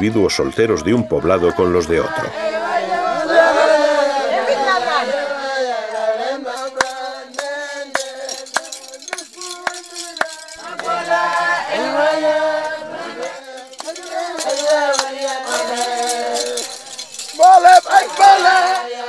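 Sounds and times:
group chanting in sung notes: 0:00.7 - 0:19.0
rattles shaking: 0:05.9 - 0:19.0.

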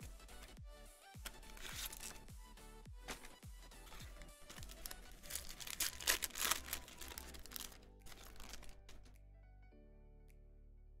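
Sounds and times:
background music with bass beat: 0:00.0 - 0:05.8
foil wrapper crinkling and tearing: 0:01.2 - 0:02.3, 0:03.1 - 0:09.1.

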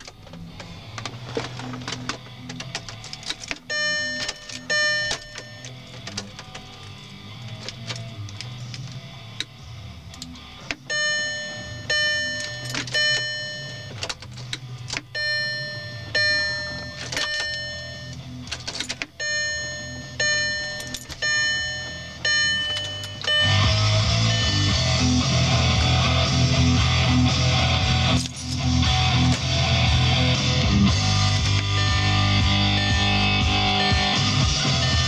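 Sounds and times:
ignition key clicks: 0:01.8 - 0:08.6, 0:10.2 - 0:23.7
car warning chime: 0:03.6 - 0:05.8, 0:10.8 - 0:14.2, 0:15.0 - 0:18.5, 0:19.1 - 0:25.6, 0:31.0 - 0:35.0.

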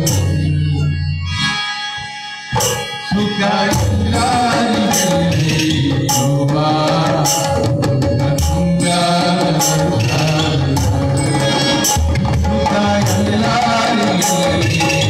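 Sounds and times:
harmonium: 0:00.0 - 0:15.0
tabla: 0:00.0 - 0:15.0
man singing: 0:03.0 - 0:15.0.

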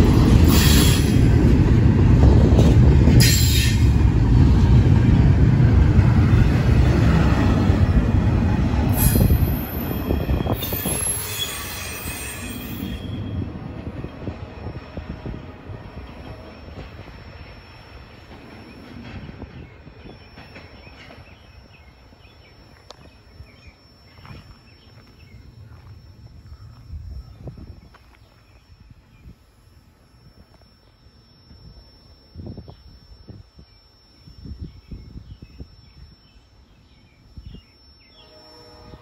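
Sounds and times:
train wheels rumbling on rail: 0:00.0 - 0:29.2
high wheel squeals: 0:08.9 - 0:13.6.

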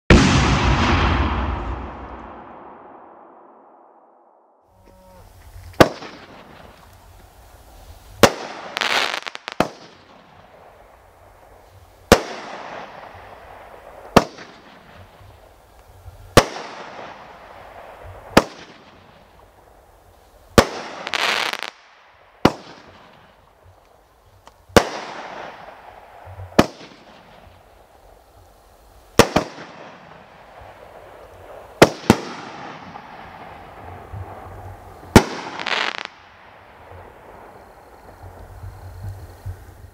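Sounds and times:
firework hiss: 0:05.0 - 0:39.9
loud hissing rush: 0:05.1 - 0:18.4
firework reports: 0:05.2 - 0:19.8, 0:24.7 - 0:39.9.

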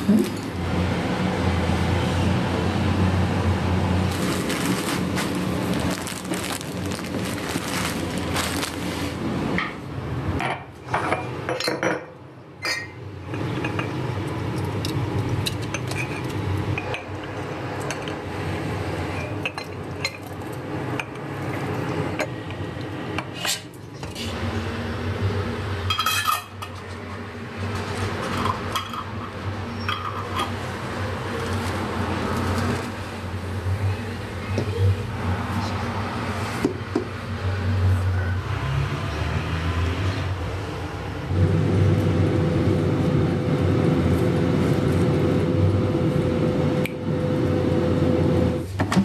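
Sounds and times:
jars and utensils clinking: 0:10.6 - 0:17.2.

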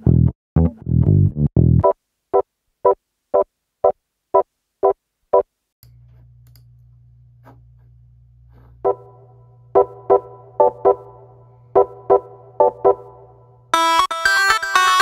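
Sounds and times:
bass line: 0:00.0 - 0:01.9
organ staccato chord stabs: 0:09.8 - 0:13.3.

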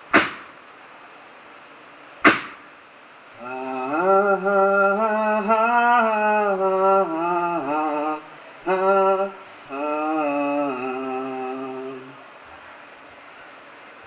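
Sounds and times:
sharp percussive hit: 0:00.1 - 0:00.5, 0:02.2 - 0:02.7
man chanting wordless melody: 0:03.4 - 0:12.2.

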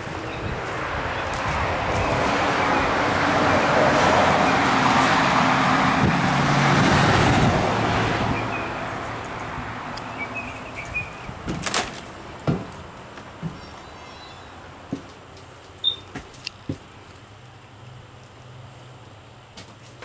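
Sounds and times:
footsteps on metal steps: 0:00.0 - 0:06.3, 0:08.4 - 0:14.0, 0:14.8 - 0:17.0
vehicle driving past: 0:00.0 - 0:11.3.

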